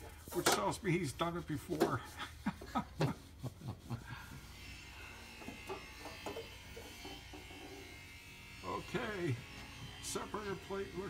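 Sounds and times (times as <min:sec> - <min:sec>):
small electric motor buzzing: 0:04.1 - 0:11.0.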